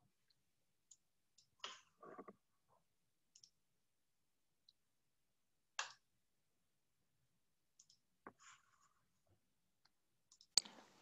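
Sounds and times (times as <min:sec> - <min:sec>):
computer mouse clicks: 0:03.3 - 0:03.6, 0:07.8 - 0:08.0, 0:10.3 - 0:10.9.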